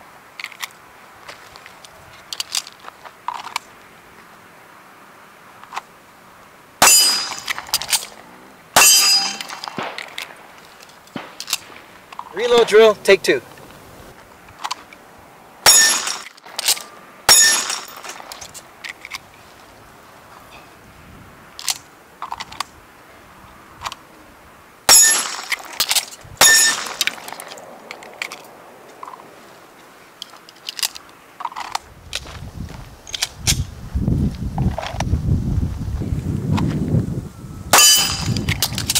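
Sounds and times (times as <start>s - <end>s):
pistol shots: 8.8s - 10.4s, 15.6s - 18.3s, 26.4s - 27.4s
magazine change clicks: 11.1s - 12.7s.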